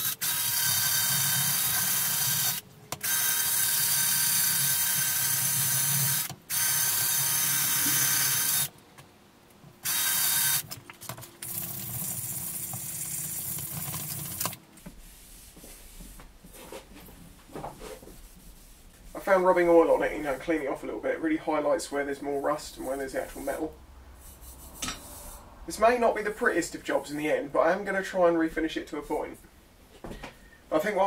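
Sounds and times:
electric drill sanding metal: 0.0 - 8.7, 9.9 - 10.6.

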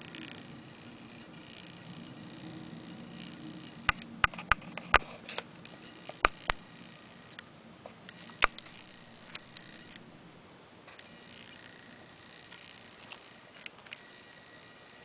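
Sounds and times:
sharp clicks and ticks: 3.1 - 7.5, 8.1 - 10.0.

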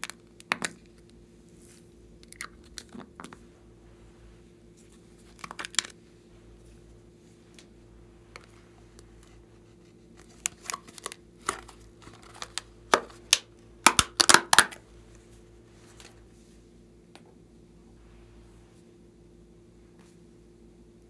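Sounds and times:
plastic packet tearing and crinkling: 5.3 - 6.0, 10.2 - 14.8.

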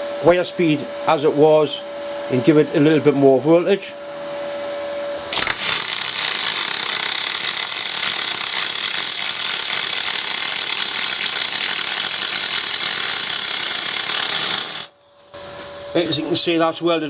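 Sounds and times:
welding arc crackling hiss: 5.4 - 14.9.

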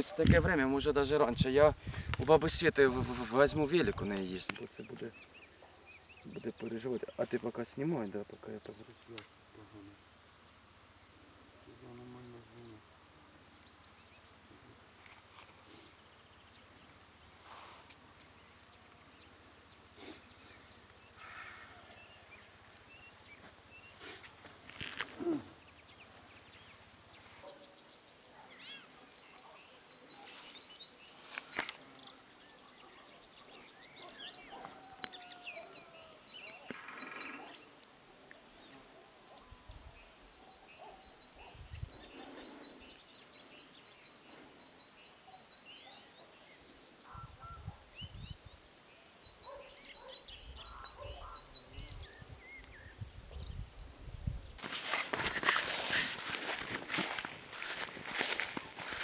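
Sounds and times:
songbirds chirping: 0.0 - 59.0
high bird trill: 27.4 - 37.8, 47.0 - 52.7.

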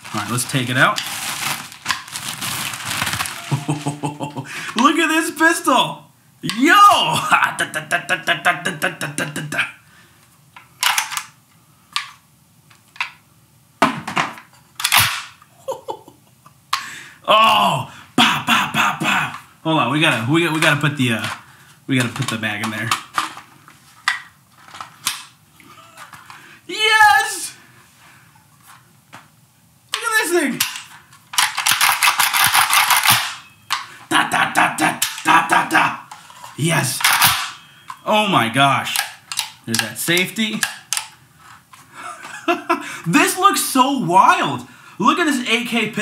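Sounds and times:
pistol clicks and clacks: 31.4 - 33.4.

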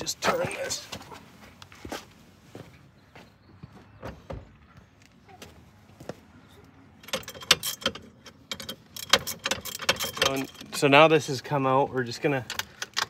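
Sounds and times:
metal tools clinking: 7.0 - 11.3.

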